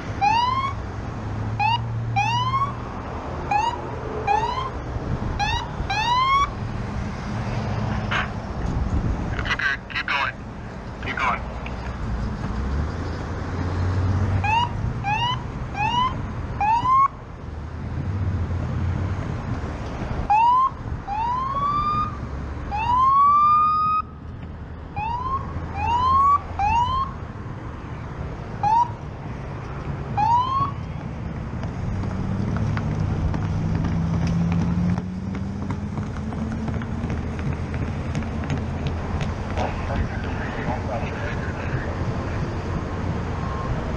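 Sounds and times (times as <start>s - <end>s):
road and wind noise: 0.0s - 43.9s
police siren chirps: 0.2s - 0.8s, 1.6s - 2.8s, 3.5s - 4.8s, 5.4s - 6.6s, 14.4s - 17.2s, 20.3s - 24.1s, 25.0s - 27.2s, 28.6s - 29.0s, 30.2s - 30.8s.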